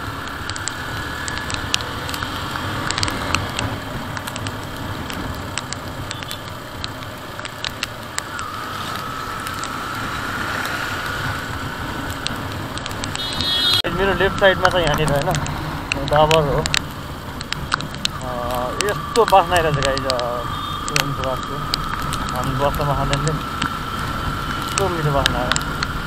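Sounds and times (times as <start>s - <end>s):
motorcycle engine: 0.0s - 26.0s
raindrop ticks: 0.0s - 26.0s
tyres on wet road: 0.0s - 26.0s
wind noise: 0.0s - 26.0s
faint whine rising in pitch: 8.2s - 12.6s.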